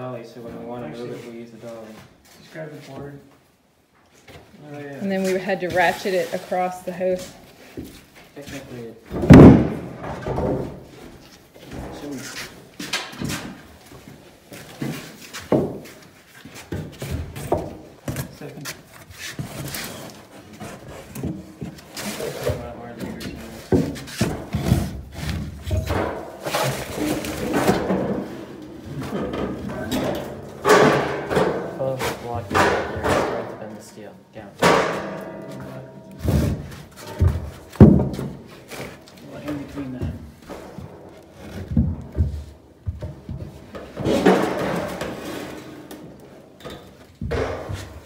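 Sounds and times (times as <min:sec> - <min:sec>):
wooden boards knocking on floor: 0:09.1 - 0:10.8, 0:36.2 - 0:38.5
wooden boards knocking and scraping: 0:09.1 - 0:12.2, 0:14.7 - 0:18.4, 0:19.4 - 0:33.6, 0:34.5 - 0:46.2, 0:46.9 - 0:48.0.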